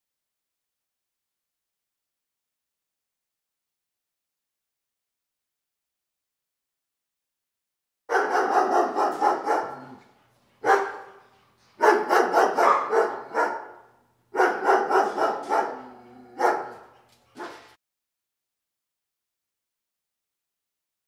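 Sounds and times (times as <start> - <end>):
dog barking: 8.1 - 17.8.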